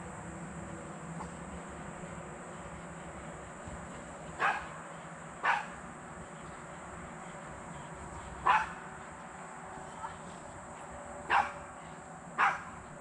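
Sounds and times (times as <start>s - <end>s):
small dog barking: 4.4s - 4.8s, 5.4s - 5.8s, 8.4s - 8.8s, 11.3s - 11.7s, 12.4s - 12.8s.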